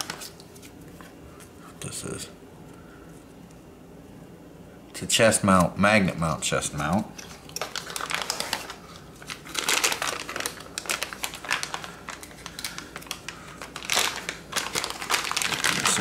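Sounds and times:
plastic bag crinkling: 7.2 - 16.0.

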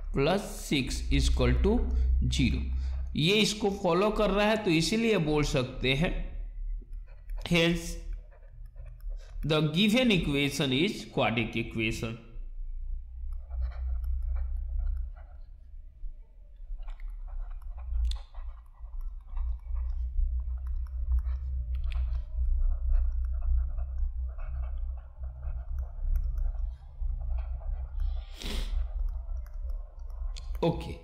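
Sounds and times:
stylus scratching on tablet: 0.0 - 12.1, 13.0 - 31.0
steady low hum: 0.0 - 31.0.

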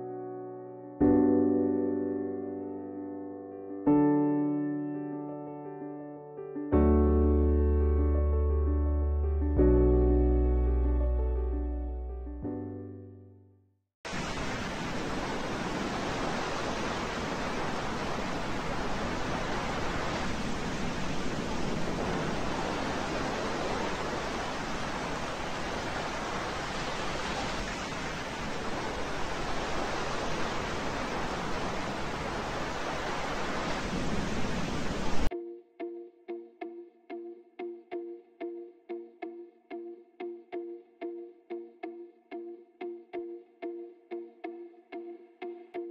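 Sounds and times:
whitewater rushing: 14.1 - 35.3.

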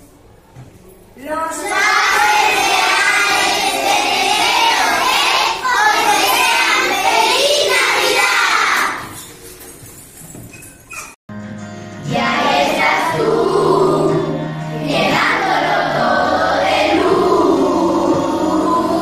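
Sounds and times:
children singing in chorus: 1.6 - 9.1, 12.1 - 19.0.

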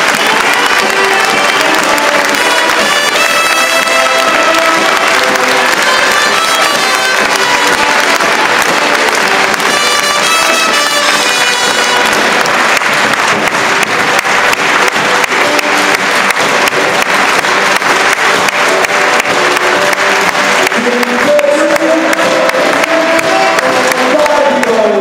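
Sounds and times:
large audience applauding: 0.0 - 25.0
scattered band instrument notes: 0.0 - 25.0.

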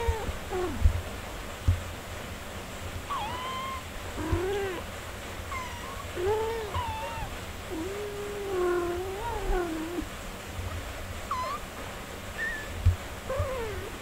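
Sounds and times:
kittens mewing: 3.1 - 10.2, 11.2 - 14.0.

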